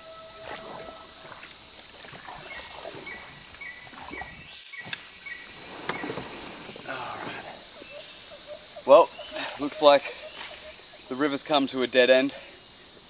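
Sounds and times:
high insect hiss: 0:00.0 - 0:13.0
paddle strokes splashing: 0:00.4 - 0:07.8, 0:09.2 - 0:10.8.

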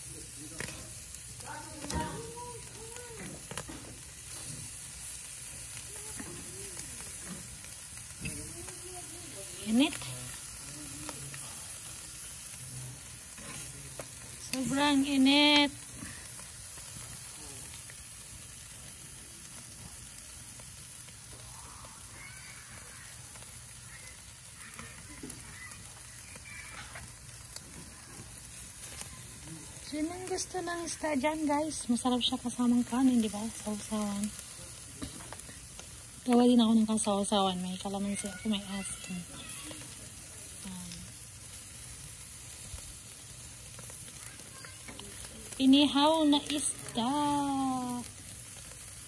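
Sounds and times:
fish sizzling on grill: 0:00.0 - 0:49.0.

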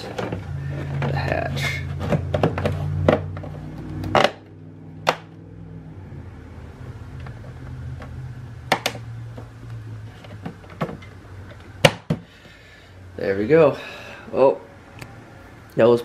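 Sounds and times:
low steady hum: 0:00.0 - 0:16.0
plastic knocks and clicks: 0:00.1 - 0:04.4, 0:10.2 - 0:12.2.

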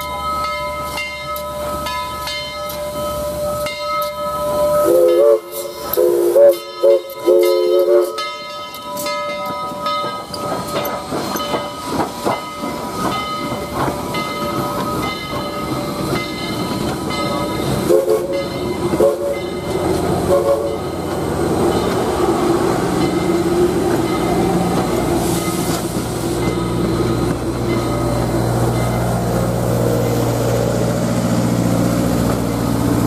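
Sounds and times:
rail cars rumbling past: 0:00.0 - 0:33.0
steam whistle blasts: 0:04.8 - 0:08.3, 0:17.9 - 0:19.4, 0:20.3 - 0:20.8
steam locomotive wheels knocking: 0:04.9 - 0:33.0.

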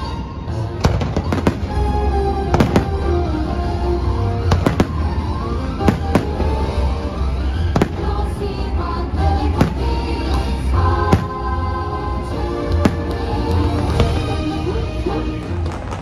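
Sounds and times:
music: 0:00.0 - 0:16.0
fireworks bursting: 0:00.8 - 0:03.6, 0:04.4 - 0:06.8, 0:15.4 - 0:16.0.

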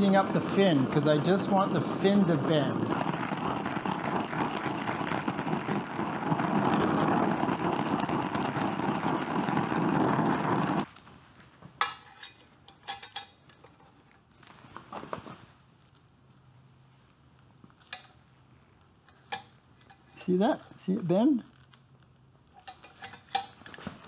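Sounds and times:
torch flame hissing: 0:00.0 - 0:10.9.

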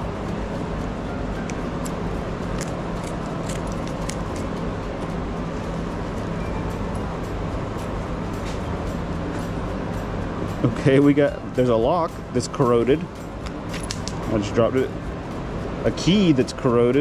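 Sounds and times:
mechanical hum: 0:00.0 - 0:17.0
scissors snipping: 0:01.4 - 0:04.5.

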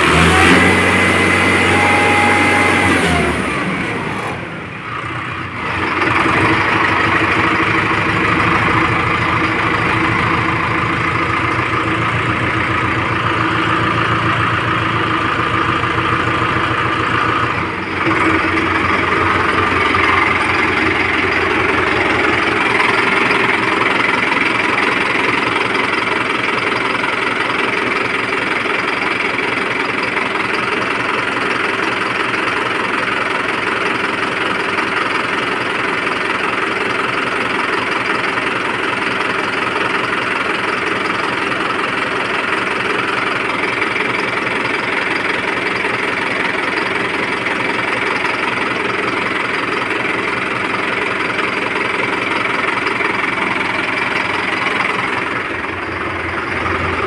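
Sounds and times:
diesel tractor engine running: 0:00.0 - 0:57.0.

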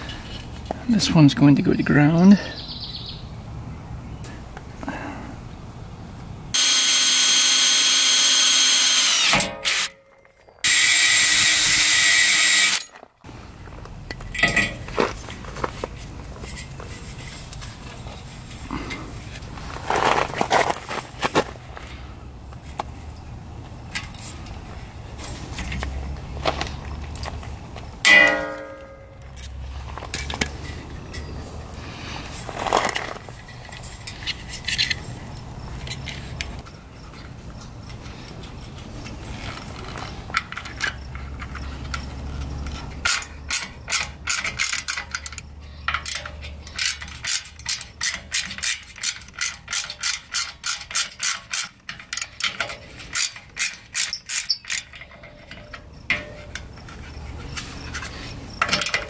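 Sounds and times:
ratchet driver clicking: 0:42.7 - 0:55.2.

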